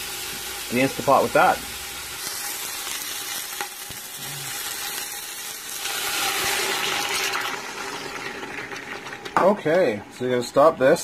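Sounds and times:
meat sizzling in a pot: 0.0s - 10.3s
broth poured into hot pot: 1.7s - 9.4s.

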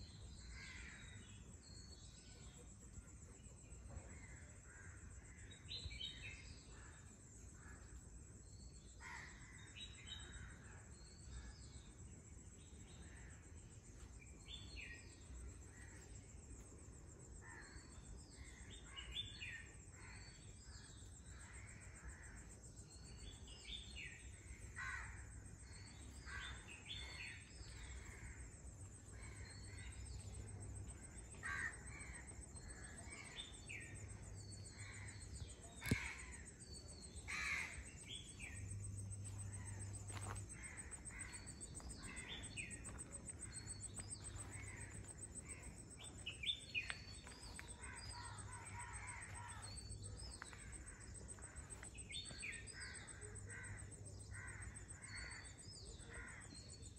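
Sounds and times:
crows cawing: 24.7s - 25.3s, 31.4s - 32.3s, 37.3s - 37.9s.

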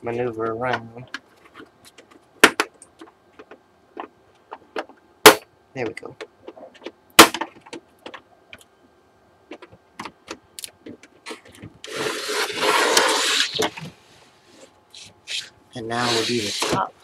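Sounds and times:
plastic scraping and rubbing: 10.8s - 16.9s.

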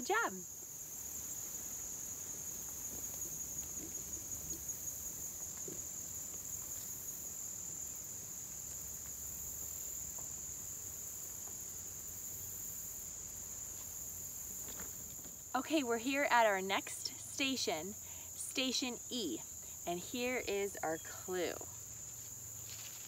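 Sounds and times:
crickets chirping: 0.0s - 23.0s
rustling steps in undergrowth: 21.8s - 23.0s.

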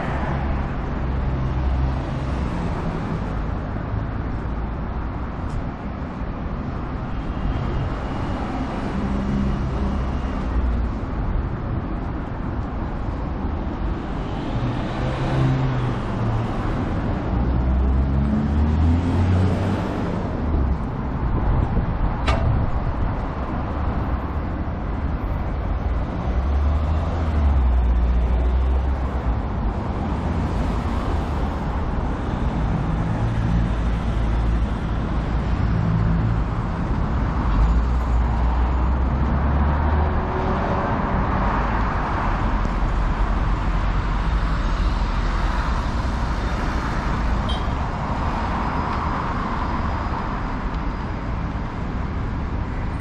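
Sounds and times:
passing vehicles: 0.0s - 53.0s.

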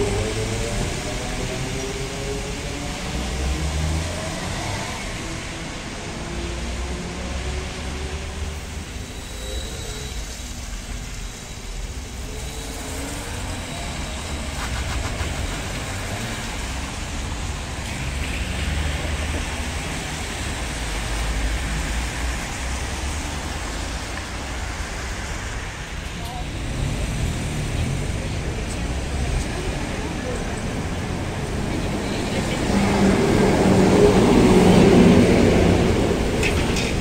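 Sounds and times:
tyre hiss on wet road: 8.6s - 29.6s.

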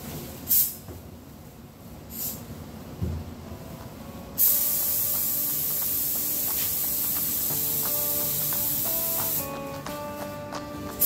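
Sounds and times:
paint spray gun hissing: 0.5s - 0.8s, 4.4s - 9.6s.

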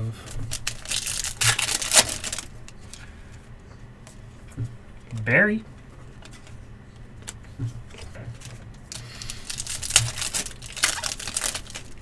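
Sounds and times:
wrapper crinkling and tearing: 0.4s - 3.0s, 8.9s - 12.0s.

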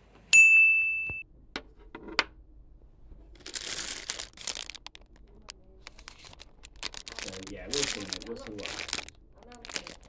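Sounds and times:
plastic bag crinkling: 3.3s - 10.0s.

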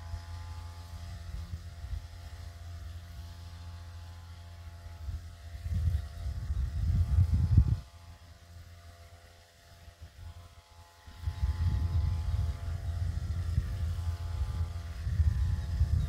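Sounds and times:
wind buffeting microphone: 5.0s - 8.0s, 11.1s - 16.0s.

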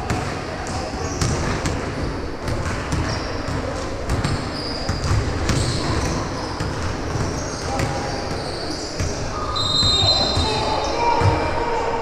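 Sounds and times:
basketball bouncing thuds: 1.2s - 8.0s
shoe squeaks on court: 2.9s - 3.6s, 4.2s - 11.3s.

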